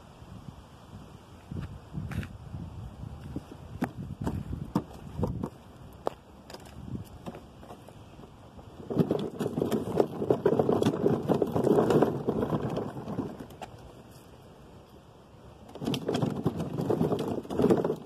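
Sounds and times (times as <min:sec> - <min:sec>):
plastic wheels rattling on concrete: 0:03.8 - 0:05.7, 0:06.4 - 0:14.4, 0:15.5 - 0:18.0.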